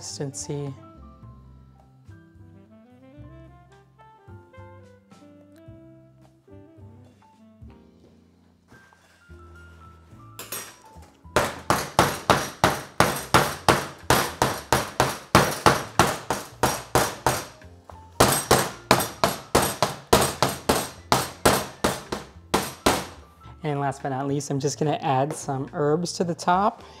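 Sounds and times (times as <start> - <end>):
wooden molds banging on metal table: 11.4 - 17.6, 18.2 - 23.2.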